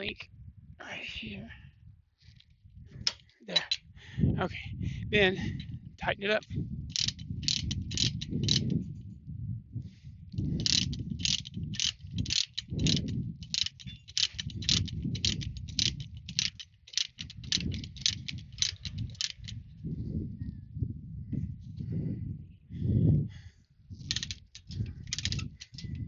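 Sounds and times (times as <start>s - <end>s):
ratchet binder pawl clicking: 3.1s - 3.8s, 6.9s - 8.8s, 10.4s - 19.6s, 24.0s - 26.0s.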